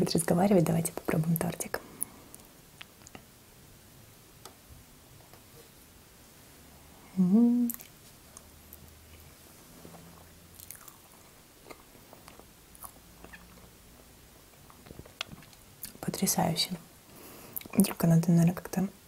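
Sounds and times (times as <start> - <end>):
woman humming mmm: 7.0 - 7.9
soft chewing: 7.7 - 16.0.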